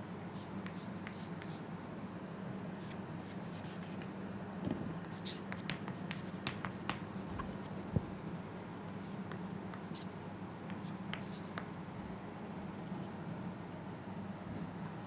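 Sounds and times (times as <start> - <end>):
low background hum: 0.0 - 15.0
chalk scraping and tapping on chalkboard: 0.4 - 1.6, 5.0 - 7.0, 9.0 - 11.7.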